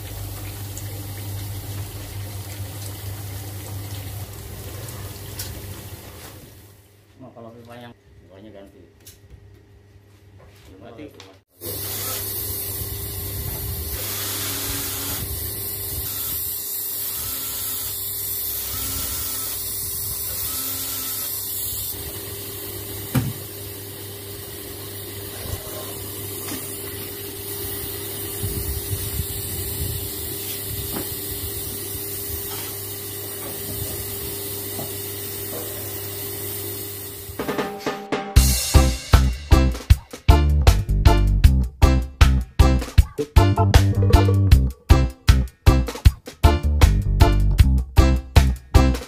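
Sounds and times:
gas torch hissing: 11.6 - 23.7, 24.3 - 37.4.

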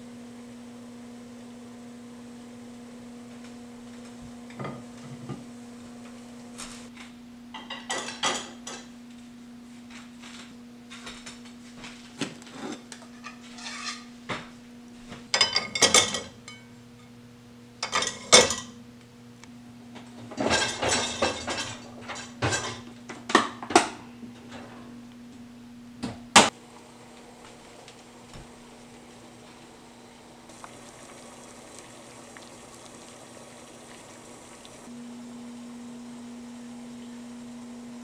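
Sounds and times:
low electrical hum: 0.0 - 38.0
plates clinking and clattering: 7.6 - 8.9, 15.4 - 16.7, 17.8 - 18.8, 20.3 - 24.7.

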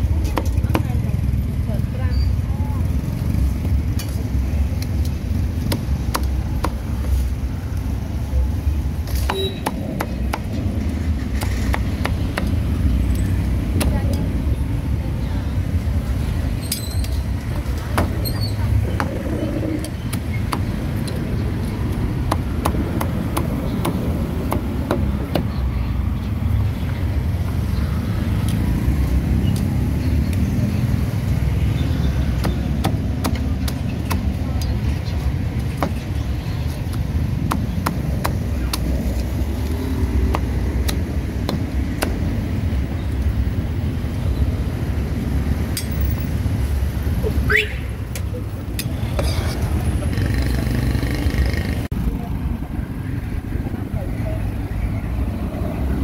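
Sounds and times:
low rumble of street traffic: 0.0 - 56.0
cleaver chopping on wooden block: 5.6 - 6.8, 19.8 - 21.2, 21.9 - 25.5, 32.4 - 34.4, 36.9 - 39.2, 40.2 - 42.2.

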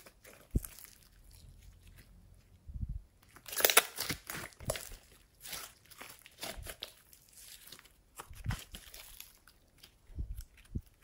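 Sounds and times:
slime crackling and popping: 3.2 - 11.0.

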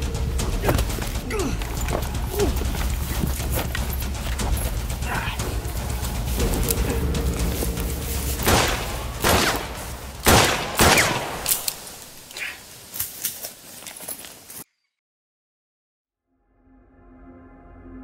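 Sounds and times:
low rumbling music: 0.0 - 12.3, 16.4 - 18.0
loud echoing gunshots: 5.6 - 12.3.

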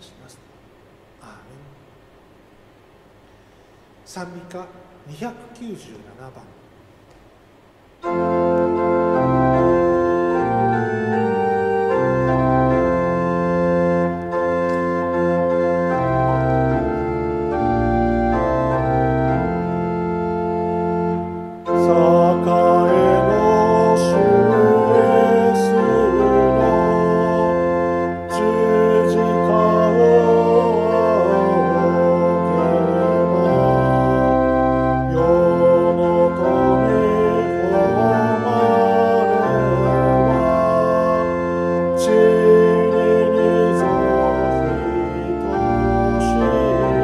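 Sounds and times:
voices singing hymn: 8.0 - 19.6, 21.2 - 47.0
church pipe organ playing hymn: 8.0 - 47.0.

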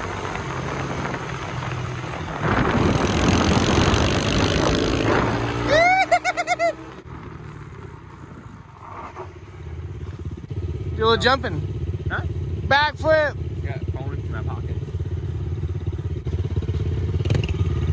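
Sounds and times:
wind noise on microphone: 0.0 - 5.7
small motorbike engine: 0.0 - 17.9.

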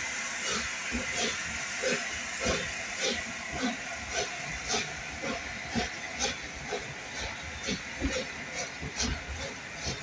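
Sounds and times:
steam hiss: 0.0 - 10.0
train coaches rolling past: 0.0 - 10.0.

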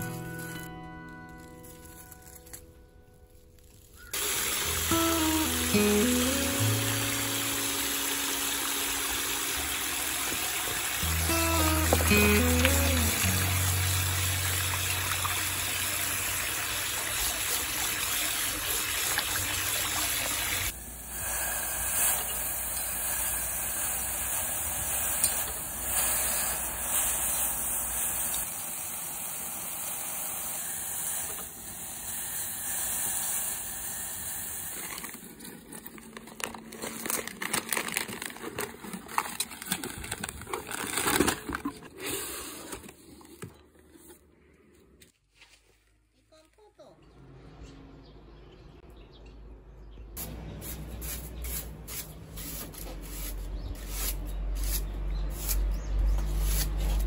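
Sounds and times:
running water splashing over greens: 4.0 - 20.8.

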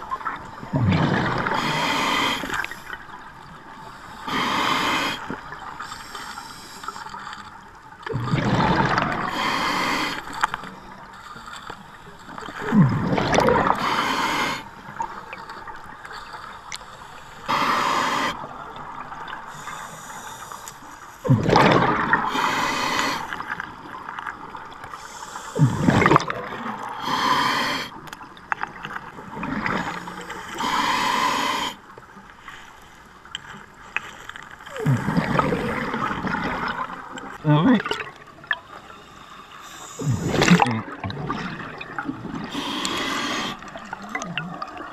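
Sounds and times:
exhaled bubbles rushing: 0.0 - 1.8, 8.0 - 9.6, 12.4 - 13.9, 21.2 - 22.4, 25.6 - 26.9, 34.7 - 38.6, 40.0 - 42.7
regulator hissing inhalations: 1.5 - 3.0, 4.2 - 7.2, 9.3 - 10.4, 13.8 - 14.7, 17.1 - 18.4, 22.3 - 23.5, 27.0 - 27.9, 30.0 - 31.8, 38.8 - 40.4, 42.5 - 43.8.

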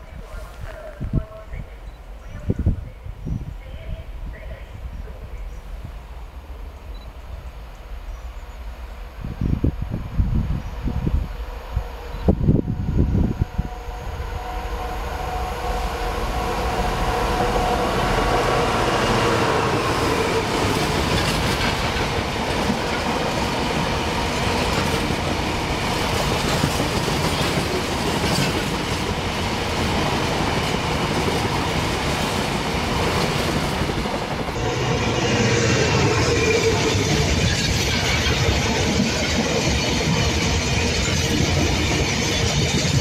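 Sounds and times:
diesel locomotive engine: 0.0 - 43.0
freight wagons rumbling past: 13.8 - 43.0.

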